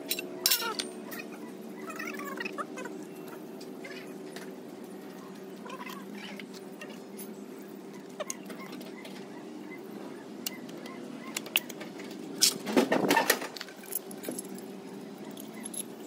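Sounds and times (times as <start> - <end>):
metal tools clinking and rattling: 0.0 - 1.3, 11.4 - 16.0.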